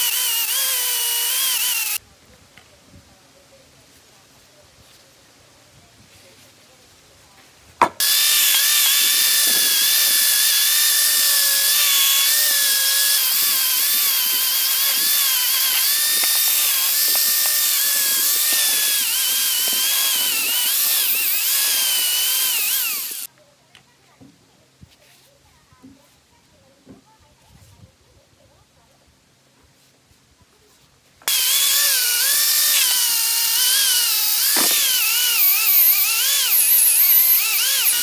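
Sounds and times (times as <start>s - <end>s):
wire wheel grinder whining: 0.0s - 2.0s, 8.0s - 23.3s, 31.2s - 38.0s.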